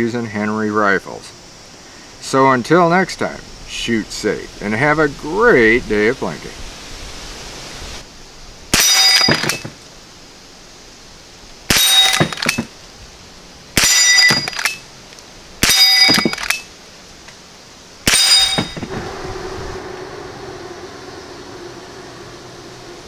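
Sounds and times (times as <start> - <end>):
metallic ring of targets: 8.8 - 9.7, 11.7 - 12.7, 13.8 - 14.8, 15.6 - 16.7, 18.1 - 19.0
rifle shots: 18.0 - 18.9.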